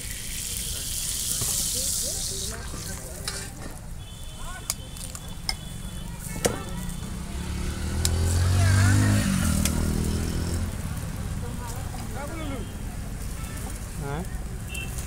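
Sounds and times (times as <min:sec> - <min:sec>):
faint sizzle: 0:00.0 - 0:15.0
passing motor vehicle engine: 0:06.5 - 0:13.3.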